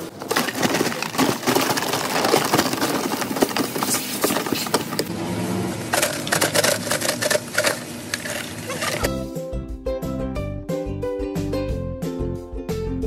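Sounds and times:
crab shells clicking and scraping: 0:05.9 - 0:09.1.

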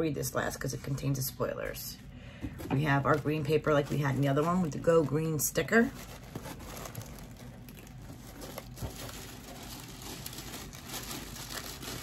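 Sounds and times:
tissue paper rustling: 0:03.0 - 0:12.0.

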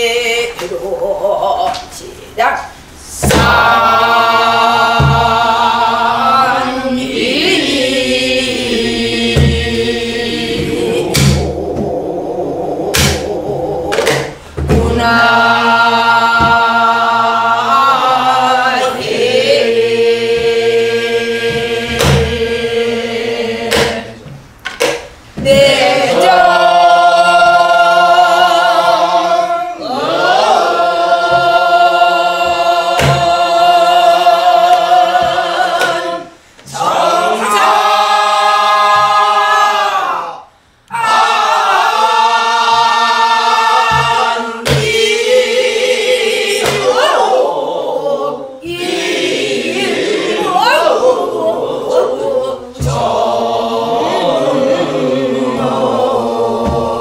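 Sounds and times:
woman singing with vibrato: 0:00.0 - 0:02.4
group of voices singing: 0:00.0 - 0:57.0
barrel drum strokes: 0:03.1 - 0:06.2, 0:08.5 - 0:18.0, 0:20.1 - 0:26.5, 0:31.2 - 0:34.0, 0:42.6 - 0:45.4, 0:52.8 - 0:53.4.

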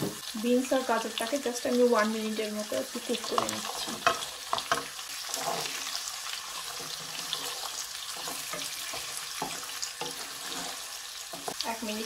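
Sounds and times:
vegetables sizzling in hot oil: 0:00.0 - 0:12.0
spatula scraping and knocking pan: 0:03.1 - 0:11.6.

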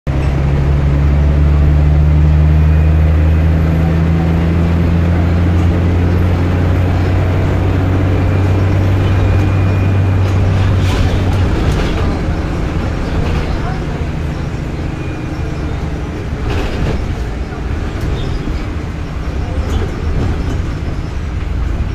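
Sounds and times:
bus diesel engine droning: 0:00.1 - 0:21.9.

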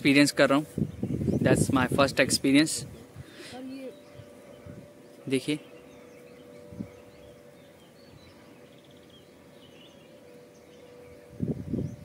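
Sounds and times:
bird chirps: 0:03.0 - 0:12.0.

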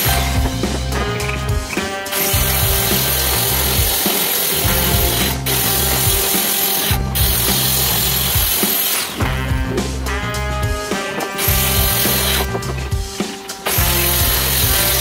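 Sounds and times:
background music with low beat: 0:00.0 - 0:15.0
circular saw cutting plywood: 0:01.8 - 0:09.2.

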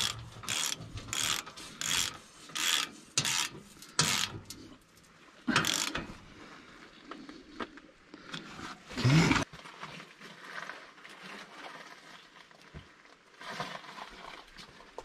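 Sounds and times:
wrench on bolts: 0:00.0 - 0:04.6, 0:05.5 - 0:06.1
light metal clanks and scrapes: 0:00.0 - 0:06.3.

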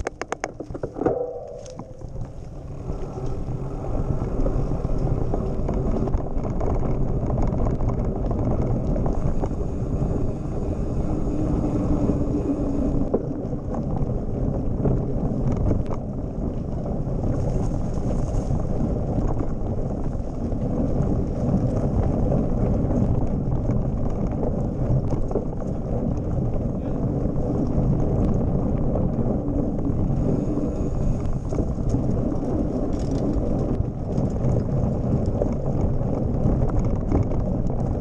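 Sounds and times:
bike knocks and clicks: 0:00.0 - 0:03.5
tyre rolling over dirt: 0:00.0 - 0:38.0
wind rumble on microphone: 0:00.0 - 0:38.0.

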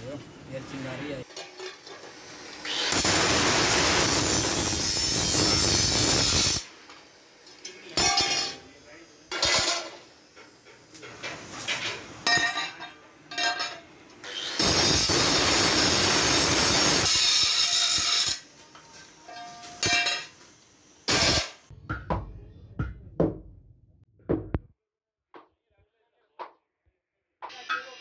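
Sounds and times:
angle grinder cutting metal: 0:01.3 - 0:06.7, 0:14.2 - 0:18.5.

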